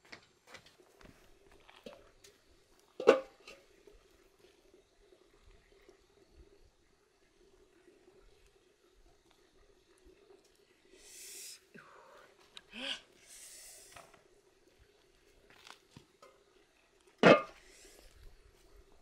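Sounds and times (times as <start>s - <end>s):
metal pot lid clanking: 3.0s - 3.6s, 17.2s - 17.6s.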